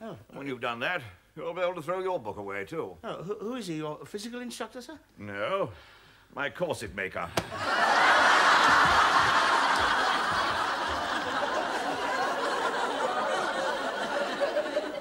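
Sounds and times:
studio audience laughing: 7.5 - 15.0.

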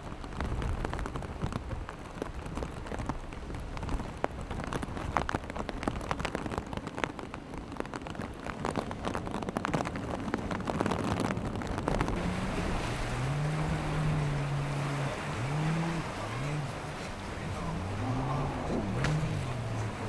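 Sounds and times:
rain spattering: 0.0 - 20.0
breaking surf: 8.3 - 20.0.

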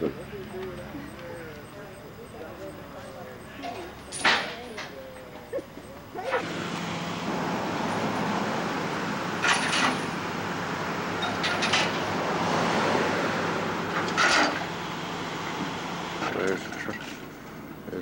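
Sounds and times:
truck diesel engine running: 0.0 - 18.0
short metallic clanks: 3.6 - 4.9, 9.4 - 10.1, 11.2 - 12.1, 14.0 - 14.7.

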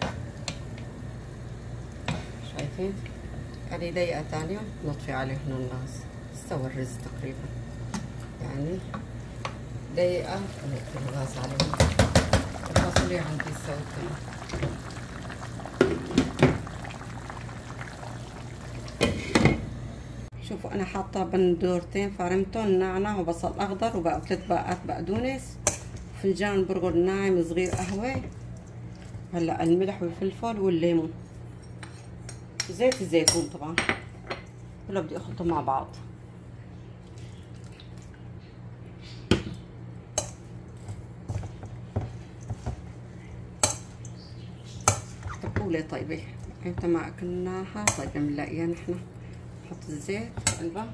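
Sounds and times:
pot bubbling at a boil: 0.0 - 20.3
steady low hum: 0.0 - 50.9.

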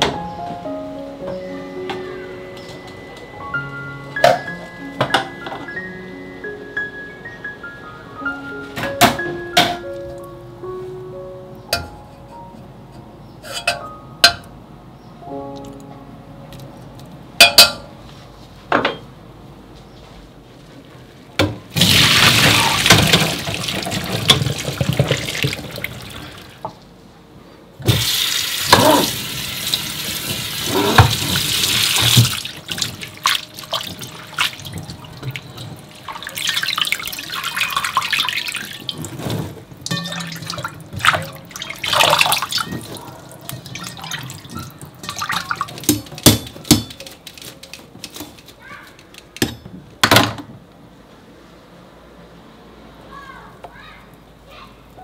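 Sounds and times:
splashing and rattling: 21.7 - 26.6, 27.9 - 48.5
tap running water: 21.8 - 26.8, 27.8 - 46.9.

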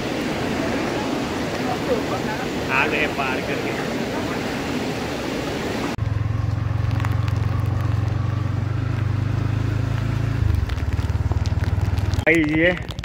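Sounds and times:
river rushing: 0.0 - 10.5
motorcycle engine running: 6.0 - 12.3.

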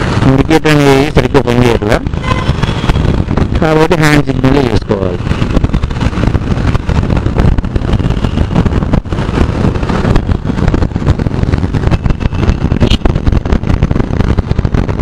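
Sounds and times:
wind and road noise: 0.0 - 15.0
motorcycle engine running: 2.0 - 3.6, 5.2 - 15.0.

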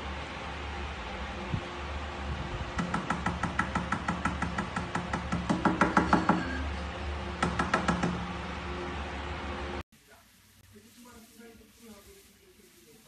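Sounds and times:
rapid knocking on glass tabletop: 2.8 - 6.5.

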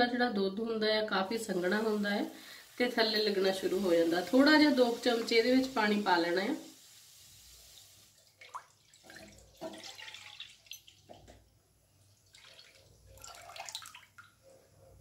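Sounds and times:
milk pouring and splashing: 8.1 - 11.4, 12.0 - 14.4.

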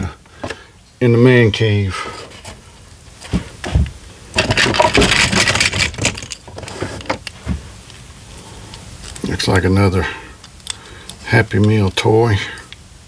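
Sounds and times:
plastic toys rattling in a box: 4.4 - 7.3.

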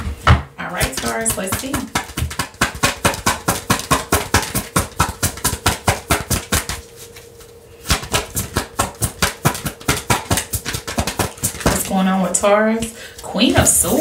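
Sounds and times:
cards being shuffled: 0.9 - 11.9.

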